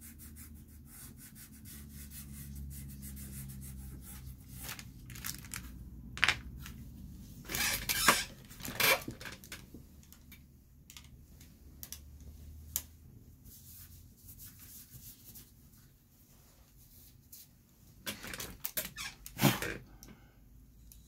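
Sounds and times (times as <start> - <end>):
drawing supplies rustling: 3.9 - 18.8.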